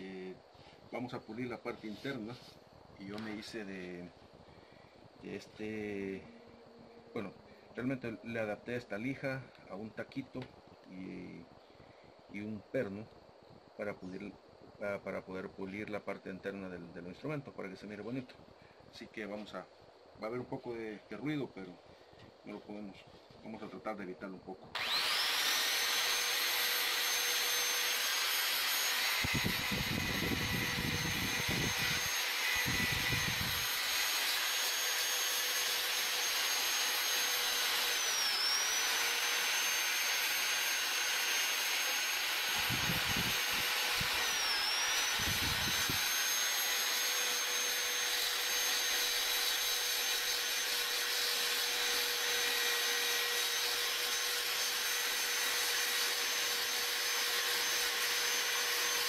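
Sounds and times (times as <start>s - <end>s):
electric drill motor whine: 24.7s - 59.0s.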